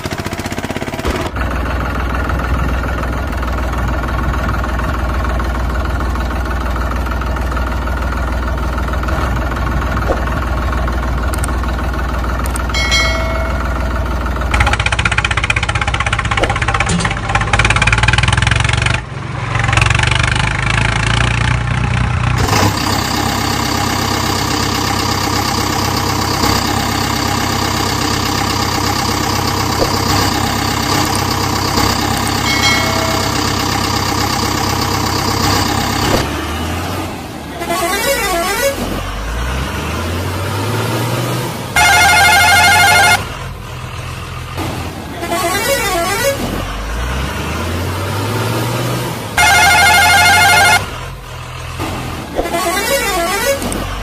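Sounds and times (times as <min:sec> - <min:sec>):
vehicle engine revving: 0:14.4 - 0:54.0
loud horn blast: 0:41.8 - 0:43.3, 0:49.4 - 0:51.0, 0:52.4 - 0:53.8.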